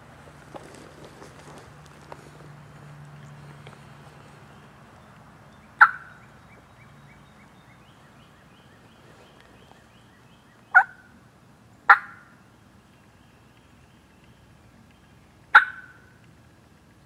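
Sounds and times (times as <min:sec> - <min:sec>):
turkey gobbling: 0:05.8 - 0:06.2, 0:10.7 - 0:11.0, 0:11.9 - 0:12.3, 0:15.5 - 0:16.0.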